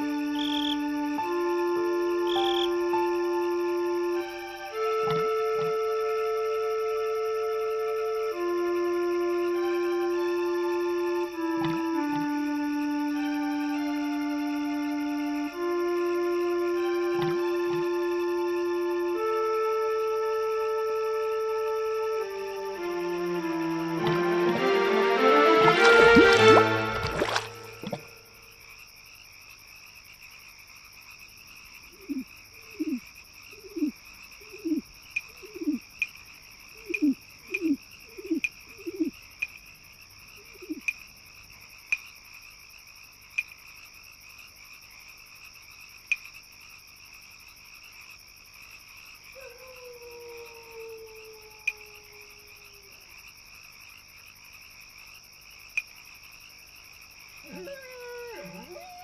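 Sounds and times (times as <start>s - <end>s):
frog-like croaks: 0.0s - 6.8s, 25.8s - 49.8s, 50.5s - 59.0s
faint clicks: 35.1s - 36.2s, 46.1s - 46.3s, 55.7s - 56.0s.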